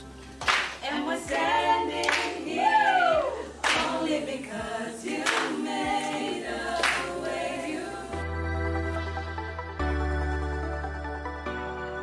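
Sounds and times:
sharp hand clap: 0.4 - 2.4, 3.6 - 4.1, 5.2 - 5.6, 6.8 - 7.1
women singing without instruments: 0.8 - 8.2.

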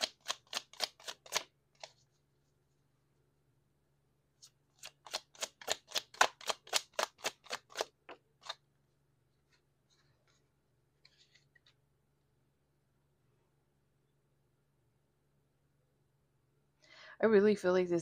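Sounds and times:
cards being shuffled: 0.0 - 2.2, 4.4 - 8.6
cards tapped down: 5.0 - 8.6.

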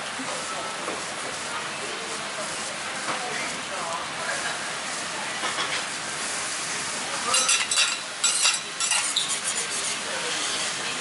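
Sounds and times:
food sizzling on griddle: 0.2 - 11.0
spatulas scraping griddle: 7.2 - 11.0.

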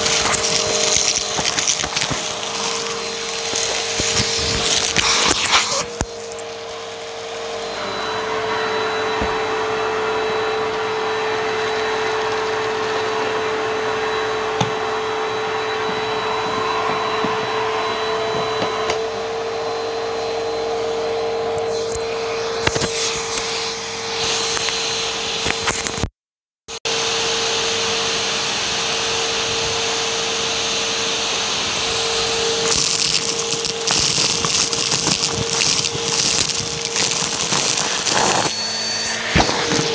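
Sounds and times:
debris rattling up hose: 0.0 - 7.0, 32.2 - 38.5
vacuum cleaner motor whining: 0.0 - 26.1, 26.7 - 39.9.

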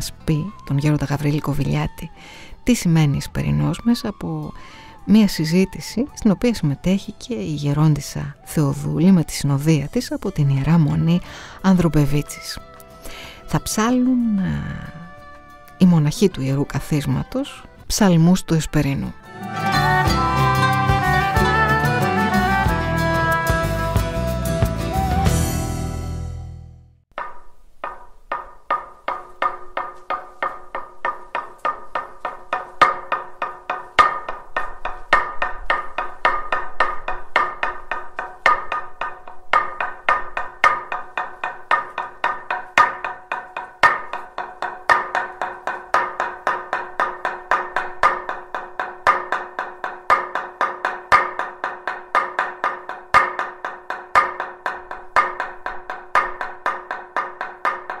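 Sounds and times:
mallet knocking on wooden board: 27.1 - 58.0.

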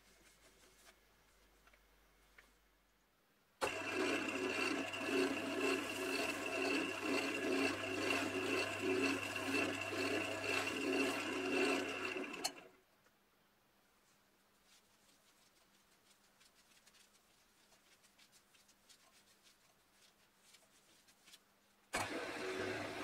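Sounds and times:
shavings rubbing on spinning wood: 3.6 - 12.6, 14.7 - 21.5
wood lathe motor hum: 3.6 - 12.7, 22.0 - 23.0.

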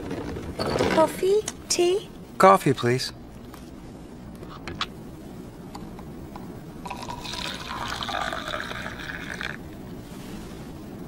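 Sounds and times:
coffee pouring into cup: 6.8 - 9.6.

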